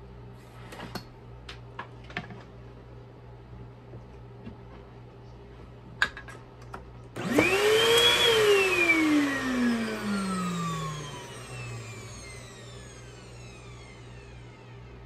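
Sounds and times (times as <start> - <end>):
vacuum motor whining: 7.2 - 15.0.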